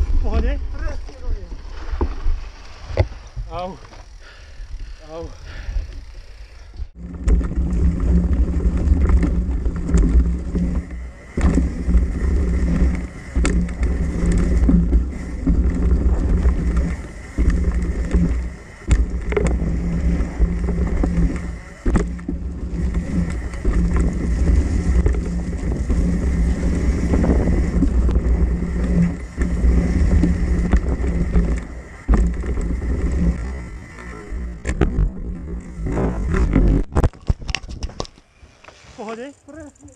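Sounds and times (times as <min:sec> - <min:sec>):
wind rumble on microphone: 0:00.0 - 0:03.8, 0:06.7 - 0:38.2
bike tyres on dirt trail: 0:00.0 - 0:39.9
bike knocking over bumps: 0:07.0 - 0:38.0.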